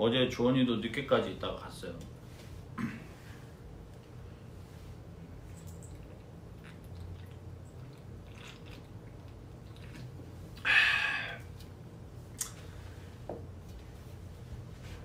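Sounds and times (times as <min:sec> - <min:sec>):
man swallowing: 0:09.7 - 0:11.7
breathy exhale: 0:10.6 - 0:11.5.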